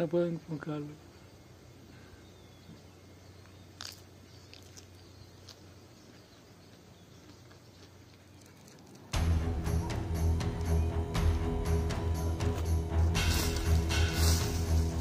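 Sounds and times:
music with a steady beat: 9.2s - 15.0s.

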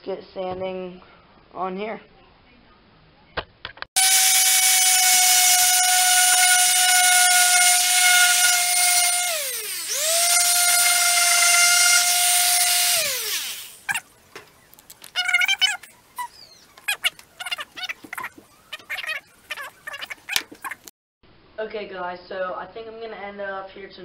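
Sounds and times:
electric sander whining: 4.0s - 14.0s.

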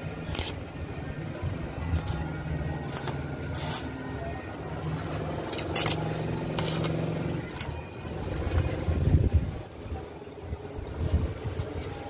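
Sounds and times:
engine running steadily: 0.0s - 12.0s
sharp clicks and scrapes: 0.2s - 0.6s.

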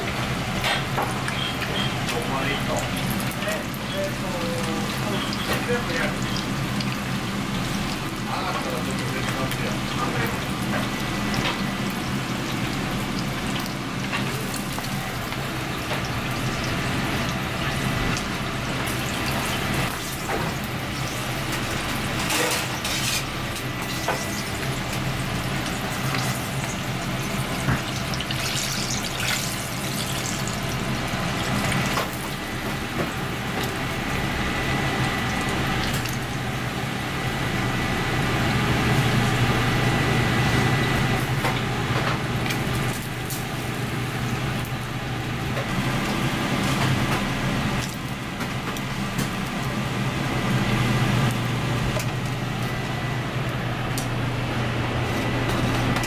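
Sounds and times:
food deep-frying in oil: 0.0s - 56.0s.

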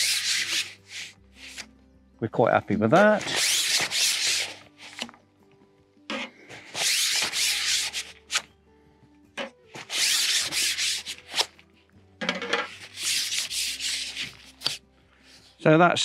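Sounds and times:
fishing pole sections rasping apart: 0.0s - 1.7s, 3.0s - 5.2s, 6.1s - 8.5s, 9.4s - 11.6s, 12.2s - 14.8s.

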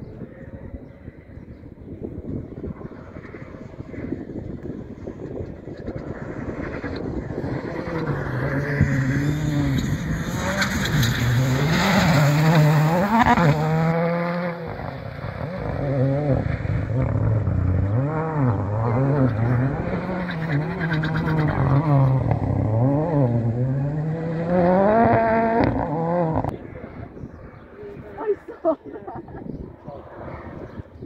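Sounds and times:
rally car engine revving: 2.8s - 27.2s.

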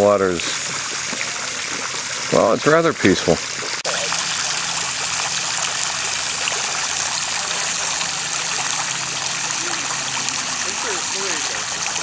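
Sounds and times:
fountain spray splashing on water: 0.0s - 12.0s.

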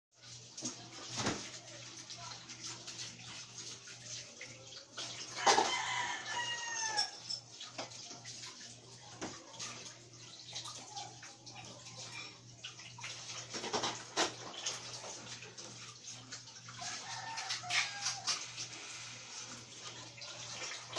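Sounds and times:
rooster crowing: 5.4s - 7.2s, 16.8s - 18.4s.

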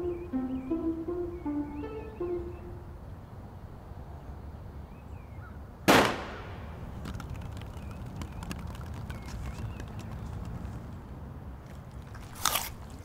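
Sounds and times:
apples bouncing on concrete: 6.8s - 11.0s.

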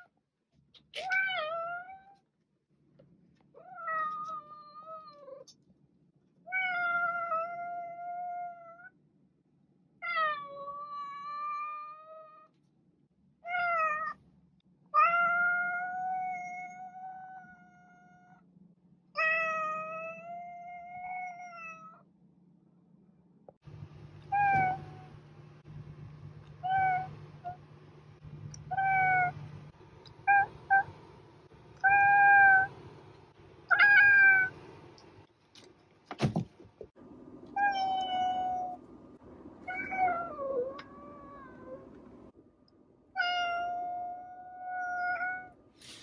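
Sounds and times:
cat meowing: 30.2s - 30.9s, 33.7s - 34.6s, 39.7s - 41.8s.

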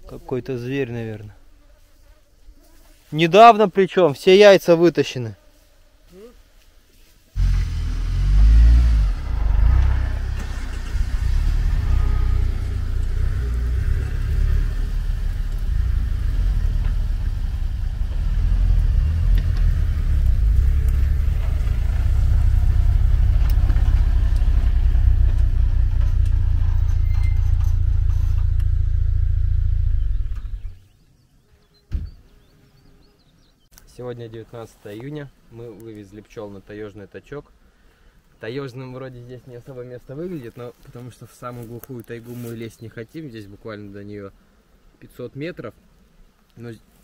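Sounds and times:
vehicle engine rumble: 7.4s - 30.8s.

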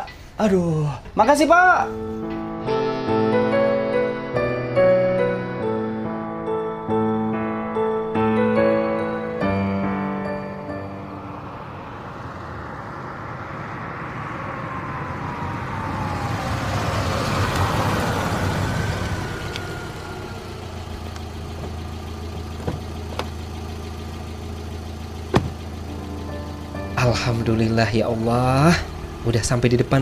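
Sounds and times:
motor vehicle passing: 8.2s - 30.0s
engine idling: 18.2s - 30.0s.

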